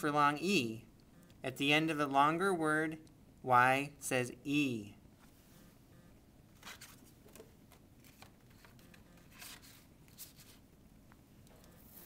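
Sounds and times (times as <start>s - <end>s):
card rustling in plastic pocket: 6.5s - 10.6s.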